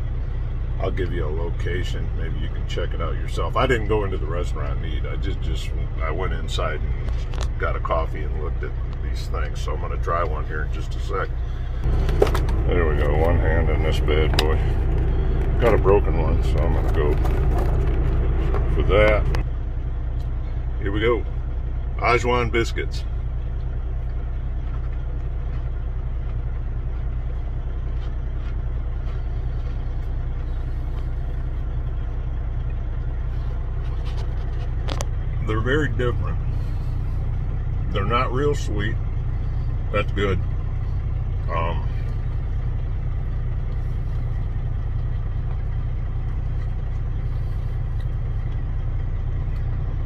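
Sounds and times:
diesel engine idling: 0:00.0 - 0:50.0
biscuit crunching: 0:11.5 - 0:19.4, 0:23.5 - 0:35.3.

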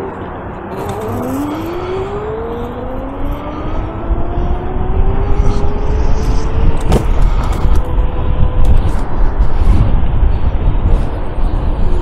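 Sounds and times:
wind rushing over microphone: 0:00.0 - 0:12.0
electric motor whining: 0:00.7 - 0:09.6.

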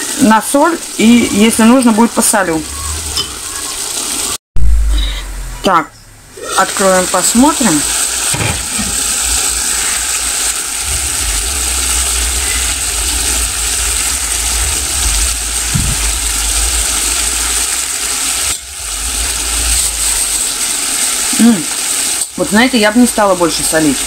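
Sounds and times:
vegetables sizzling in a pan: 0:00.0 - 0:04.4, 0:06.4 - 0:24.0
low rumble: 0:04.6 - 0:06.4, 0:09.3 - 0:20.6.

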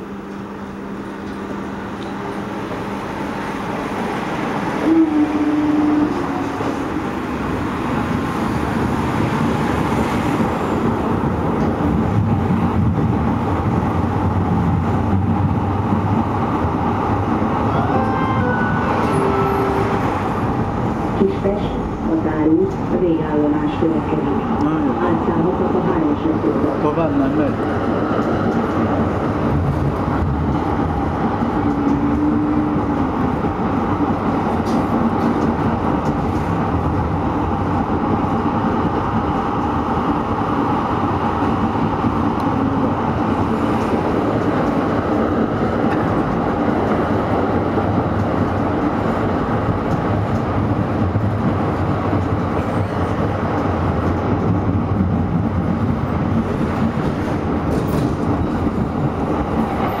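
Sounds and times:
tram running noise: 0:00.0 - 1:00.0.

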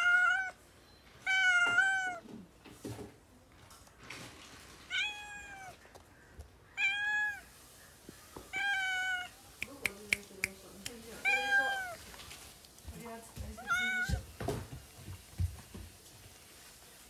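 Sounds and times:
kitten meowing: 0:00.0 - 0:00.6, 0:01.3 - 0:02.2, 0:08.5 - 0:09.3, 0:11.2 - 0:12.0, 0:13.6 - 0:14.2.

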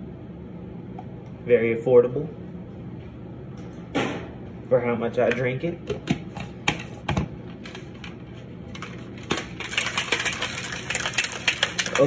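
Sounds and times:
shaker bottle rattling: 0:08.7 - 0:12.0.

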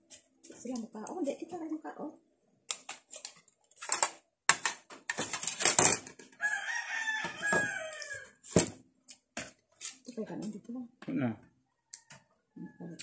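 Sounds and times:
rooster crowing: 0:06.4 - 0:08.4.

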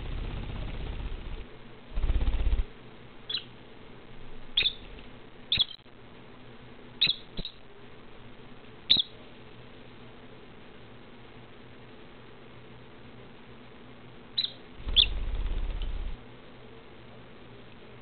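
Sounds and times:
lovebird chirping: 0:03.2 - 0:03.5, 0:04.5 - 0:05.8, 0:07.0 - 0:07.6, 0:08.9 - 0:09.2, 0:14.4 - 0:16.2.

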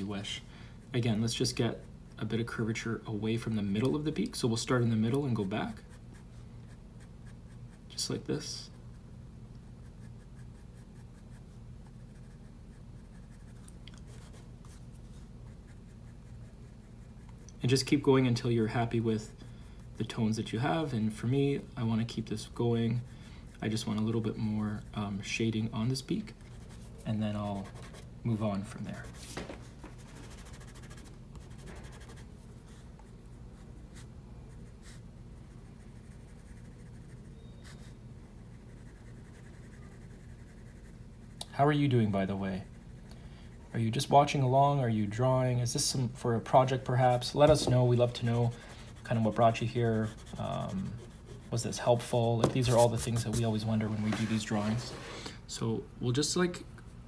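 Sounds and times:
steady low hum: 0:00.0 - 0:57.0
pencil scratching on paper: 0:09.7 - 0:17.4, 0:26.4 - 0:32.8, 0:33.6 - 0:41.4, 0:47.1 - 0:55.1
pencil shading on paper: 0:47.5 - 0:53.4.

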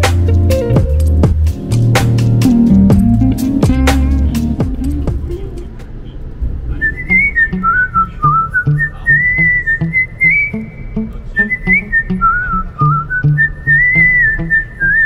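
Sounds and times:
whistled tune over bass beat: 0:11.4 - 0:15.0.

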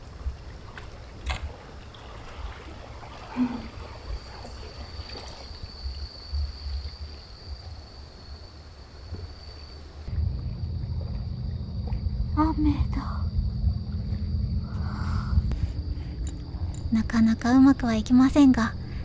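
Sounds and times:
water lapping and trickling: 0:00.0 - 0:19.0
low rumble: 0:10.0 - 0:19.0.

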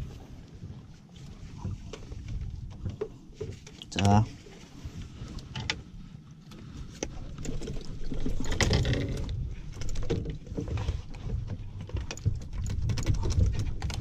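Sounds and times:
knocks and clicks on a boat: 0:00.0 - 0:04.2, 0:06.5 - 0:14.0.

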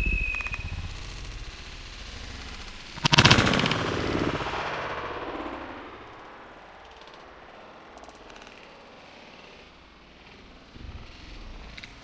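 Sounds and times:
shotgun shot: 0:03.0 - 0:06.8.

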